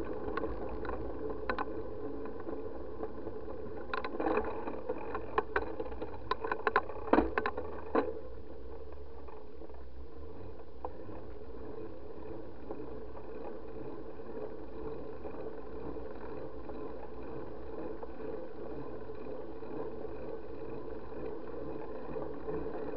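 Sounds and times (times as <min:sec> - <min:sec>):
sharp clicks and knocks: 0:00.0 - 0:08.2
bicycle tyres rolling on pavement: 0:00.0 - 0:22.9.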